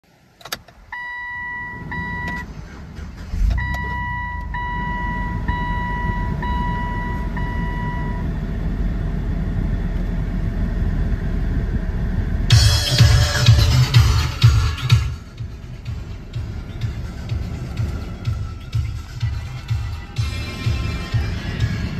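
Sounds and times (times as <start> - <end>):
pickup engine cranking and idling: 0.0 - 21.9
dashboard warning chime: 0.9 - 2.5, 3.4 - 8.3.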